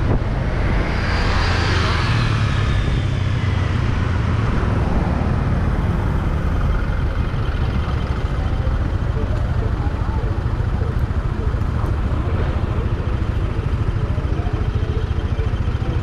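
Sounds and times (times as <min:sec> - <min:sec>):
vehicle passing: 0:00.0 - 0:07.9
low traffic rumble: 0:00.0 - 0:16.0.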